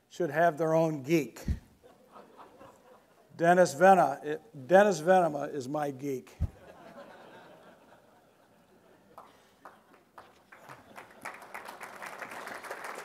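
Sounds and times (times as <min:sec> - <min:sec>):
audience clapping: 0:09.1 - 0:13.0.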